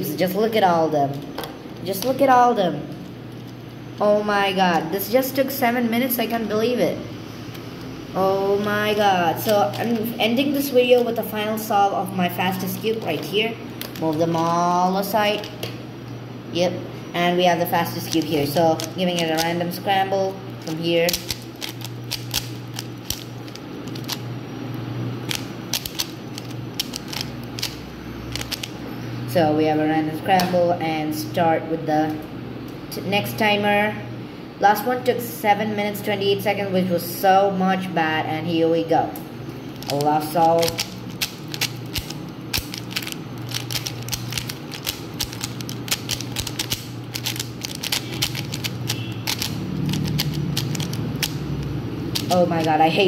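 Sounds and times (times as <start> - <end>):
low steady hum: 0.0 - 53.0
puzzle cube clicking: 17.9 - 19.6, 20.6 - 24.2, 25.2 - 28.7, 39.8 - 51.4, 52.1 - 52.8.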